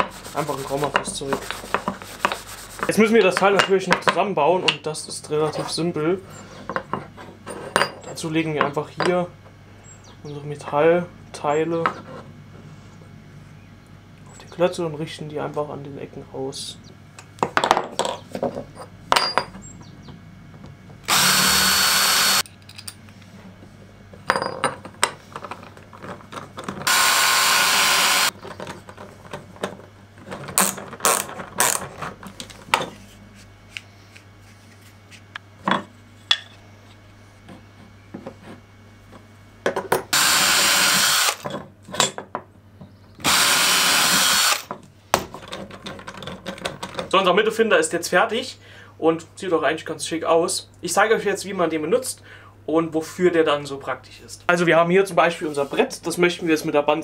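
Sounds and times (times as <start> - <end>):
cordless drill driving screws: 21.1 - 22.4, 26.8 - 28.3, 40.2 - 41.4, 43.2 - 44.7
clicks and knocks of tools: 22.4 - 23.3.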